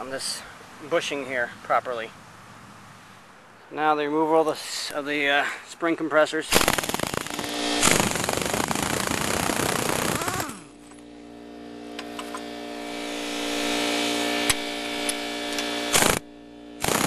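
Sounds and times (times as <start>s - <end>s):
pneumatic impact wrench hammering: 6.5s - 11.1s, 11.9s - 17.0s
impact wrench spinning whine: 6.5s - 17.0s.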